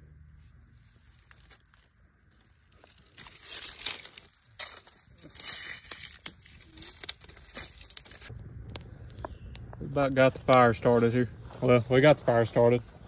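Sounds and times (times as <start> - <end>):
fire crackling: 0.7 - 13.0
sharp pops of fire: 7.0 - 11.5.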